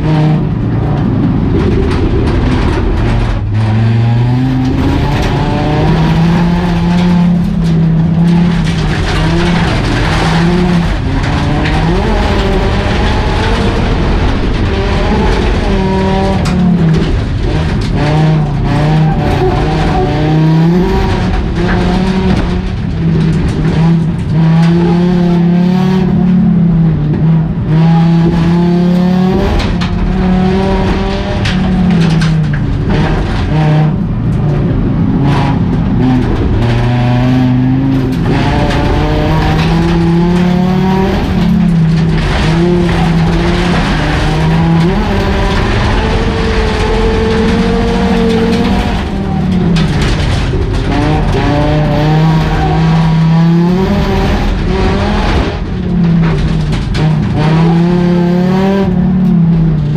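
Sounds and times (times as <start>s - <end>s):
car knocks and rattles: 0.0s - 59.9s
race car engine revving: 0.0s - 59.9s.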